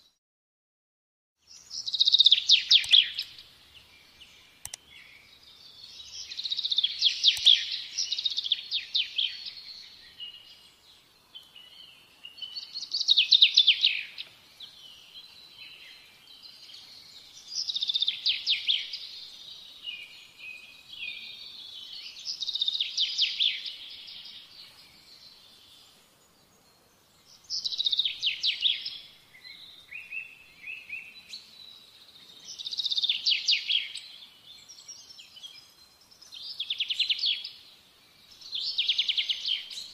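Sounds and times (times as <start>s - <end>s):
songbird trilling: 1.6s - 3.5s, 6.0s - 9.6s.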